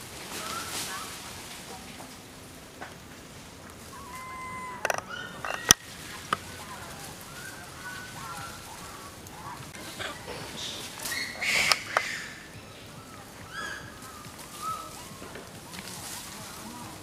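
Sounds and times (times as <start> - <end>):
monkey calls: 0.2 - 1.4, 3.8 - 17.0
sharp clicks: 11.5 - 12.2.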